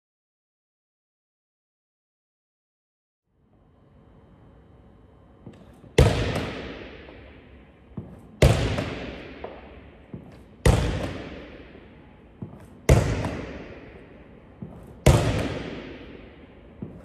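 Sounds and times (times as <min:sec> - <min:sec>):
basketball hitting wall: 0:05.5 - 0:07.2, 0:08.0 - 0:11.7, 0:12.4 - 0:17.0.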